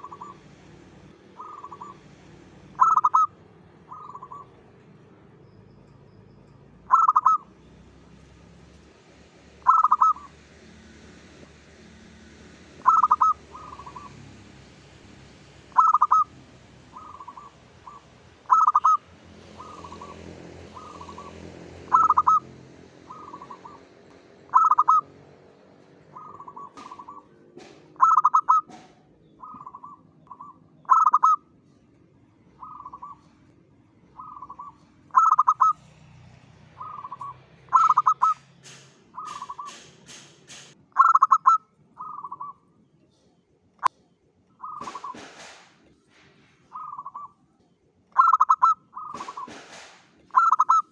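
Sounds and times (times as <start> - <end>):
dove cooing: 0.0 - 0.4, 1.3 - 2.1, 2.7 - 4.6, 6.9 - 7.5, 9.6 - 10.3, 12.8 - 14.2, 15.7 - 16.3, 16.9 - 25.1, 26.0 - 31.4, 32.6 - 33.4, 34.1 - 35.9, 36.8 - 38.4, 39.2 - 39.9, 41.0 - 42.6, 44.6 - 45.4, 46.7 - 47.3, 48.2 - 49.7, 50.3 - 50.9.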